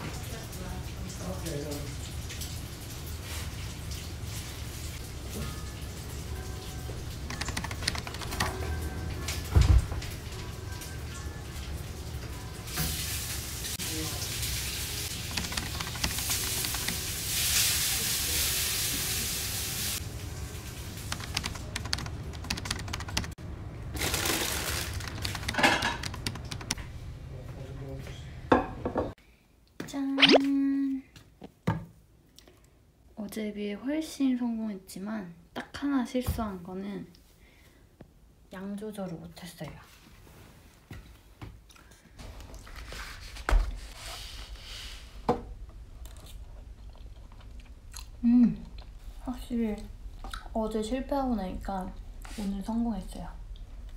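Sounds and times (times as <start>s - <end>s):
food sizzling in frying pan: 11.8s - 15.3s, 16.2s - 21.1s.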